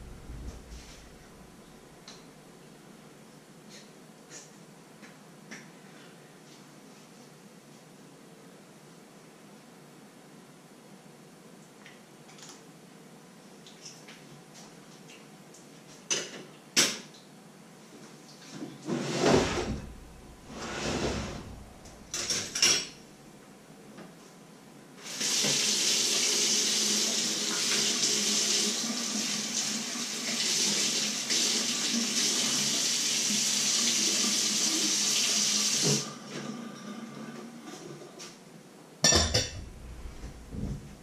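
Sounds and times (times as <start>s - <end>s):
kitchen tap running into sink: 25.0s - 36.1s
knocks and clattering at sink: 39.1s - 41.0s.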